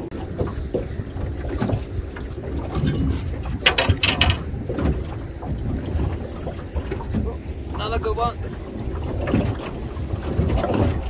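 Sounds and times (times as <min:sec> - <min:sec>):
water lapping at boat hull: 0:00.0 - 0:11.0
wind on microphone: 0:00.0 - 0:11.0
sharp knocks and clatter: 0:02.7 - 0:05.0.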